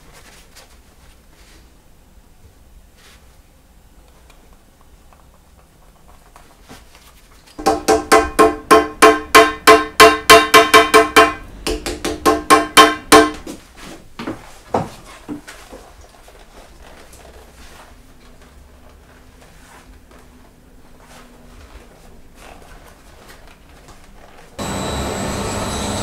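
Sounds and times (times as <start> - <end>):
rapid ringing hammer blows: 7.6 - 11.5.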